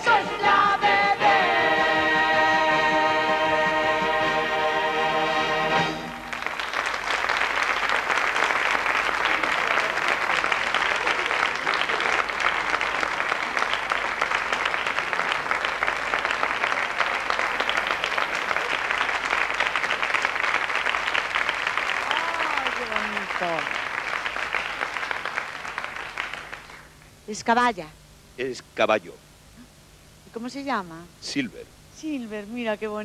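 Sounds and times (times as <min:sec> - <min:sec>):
audience applauding: 0:05.9 - 0:27.0.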